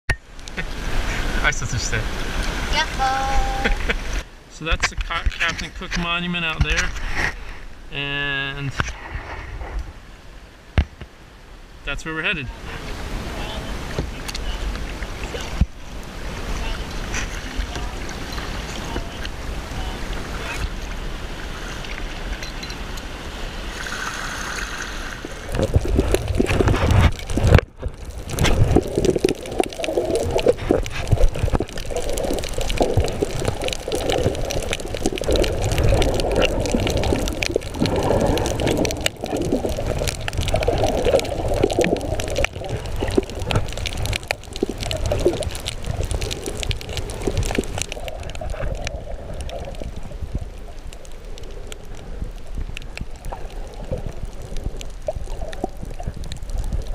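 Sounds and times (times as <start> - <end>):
water splashing and rushing: 0.1 - 56.9
muffled underwater gurgling: 25.2 - 56.9.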